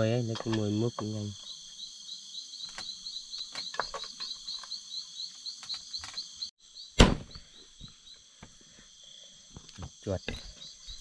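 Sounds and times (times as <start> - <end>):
high insect hum: 0.0 - 11.0
night insects chirping: 0.0 - 11.0
loud thump: 7.0 - 7.4.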